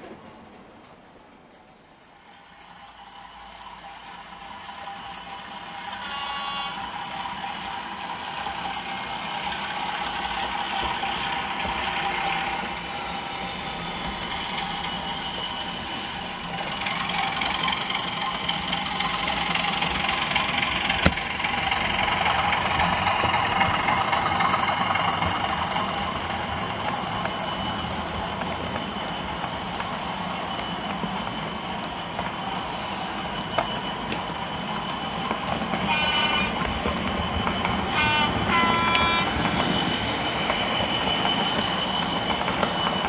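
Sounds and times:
model train wheels on track: 0.0 - 43.0
model diesel engine sound: 2.9 - 29.8.

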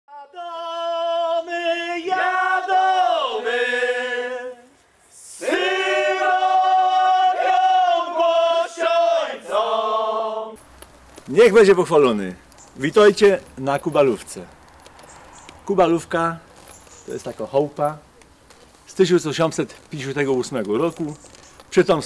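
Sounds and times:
men singing unaccompanied: 0.1 - 10.6.

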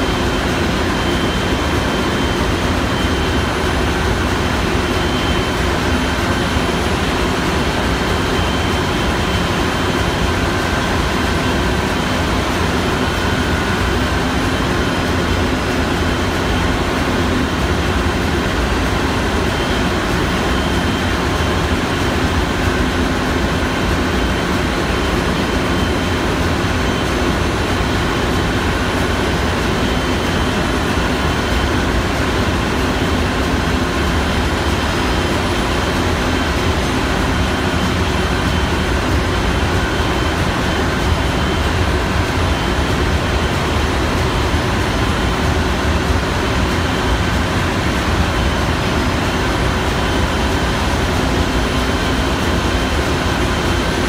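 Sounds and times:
engine room machinery drone: 0.0 - 54.0
machinery hums and whines: 0.0 - 54.0.

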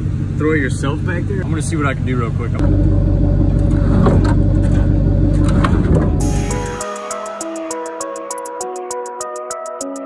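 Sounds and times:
vehicle engine idling: 0.0 - 6.8
electronic music with ticking beat: 6.2 - 10.0.

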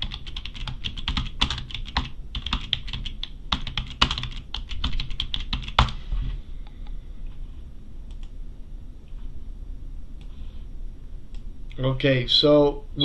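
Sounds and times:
typing on a computer keyboard: 0.0 - 6.0.

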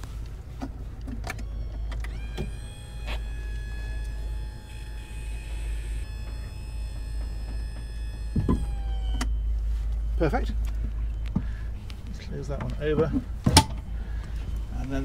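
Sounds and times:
door drive motor whining: 0.9 - 12.0.

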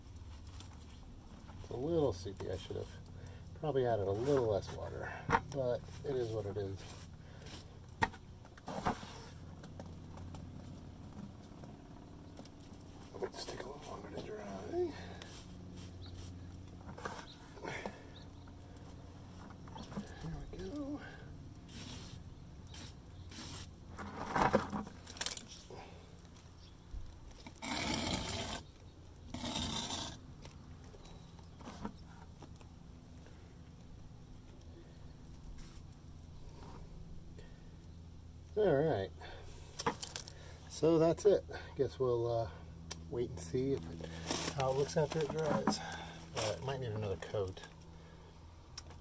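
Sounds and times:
steady low hum: 0.0 - 49.0
putty knife scraping wet stucco: 27.5 - 28.7, 29.3 - 30.2.

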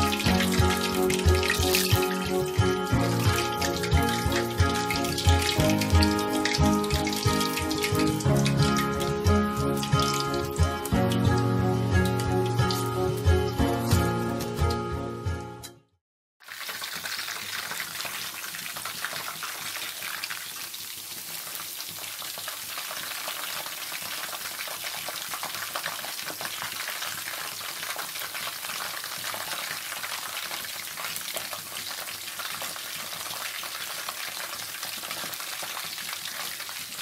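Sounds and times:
deep-frying sizzle: 0.0 - 15.2, 16.4 - 37.0.

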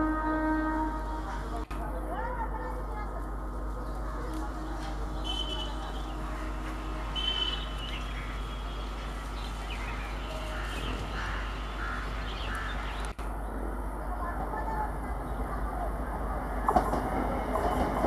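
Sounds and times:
crows cawing: 10.3 - 13.0.

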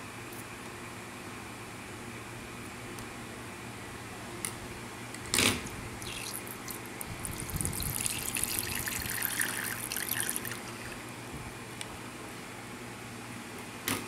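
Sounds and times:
liquid trickling into mug: 6.0 - 11.0.

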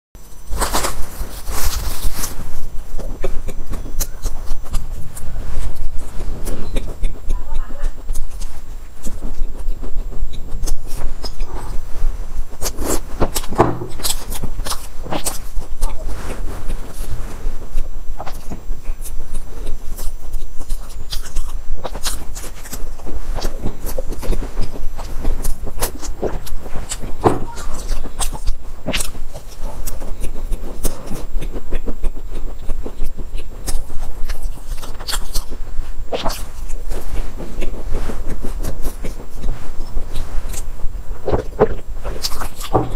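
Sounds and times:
chewing crumbly pastry: 0.2 - 42.9
steady low hum: 0.2 - 42.9
wet mouth clicks: 3.0 - 11.8.

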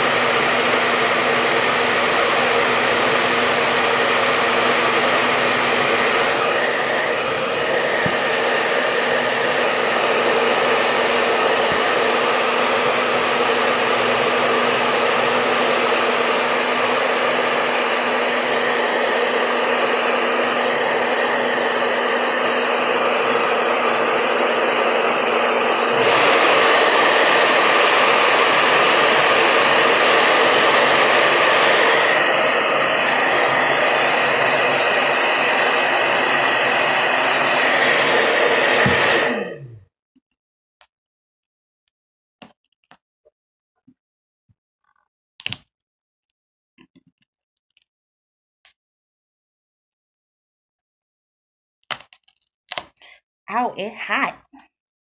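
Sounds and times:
hair dryer blowing: 0.0 - 39.8.

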